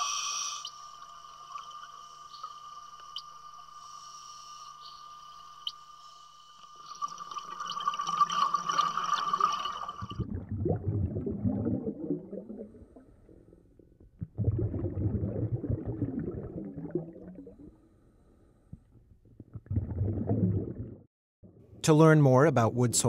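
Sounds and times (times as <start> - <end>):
underwater breathing hiss: 0.0 - 0.7
exhaled air bubbling: 7.0 - 17.9, 18.7 - 21.1.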